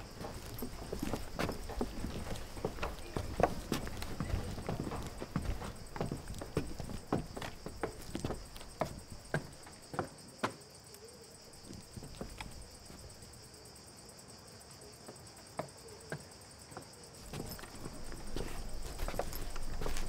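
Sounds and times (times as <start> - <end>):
footsteps on hard ground: 0.0 - 10.6, 11.6 - 13.1, 17.2 - 20.0
insects trilling: 0.0 - 20.0.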